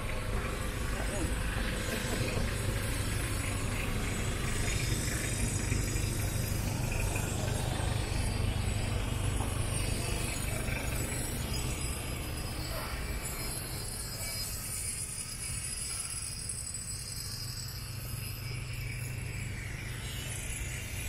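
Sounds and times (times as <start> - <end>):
street traffic rumble: 0.0 - 16.2.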